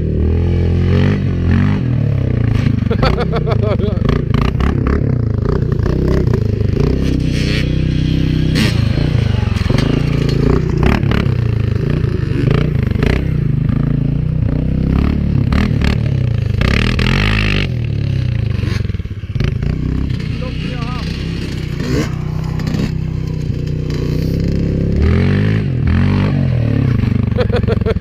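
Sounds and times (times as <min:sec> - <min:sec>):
quad bike engine revving: 0:00.0 - 0:28.0.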